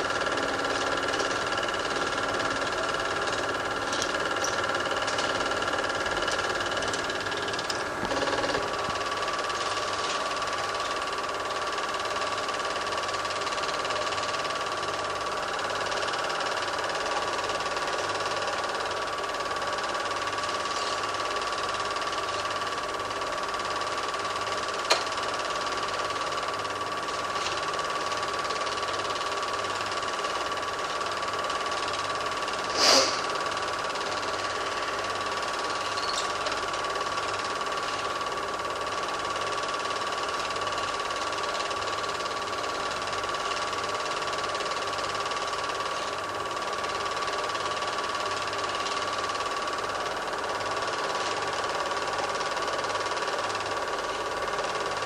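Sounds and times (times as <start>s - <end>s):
film projector whirring: 0.0s - 55.0s
hissing burst: 32.7s - 33.3s.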